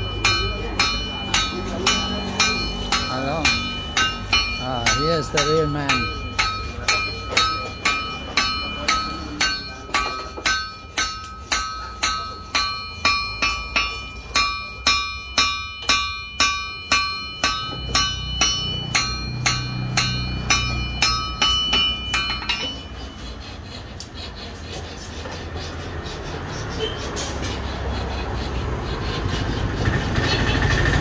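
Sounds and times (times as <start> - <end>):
hammer ringing on anvil: 0.0 - 23.5.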